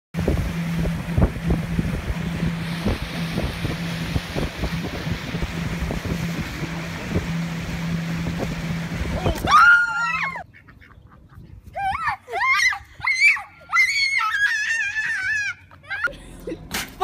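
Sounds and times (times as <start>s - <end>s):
water thumping against hull: 0.2s - 9.6s
wind buffeting microphone: 0.2s - 9.7s
boat motor humming: 0.2s - 11.5s, 12.2s - 16.8s.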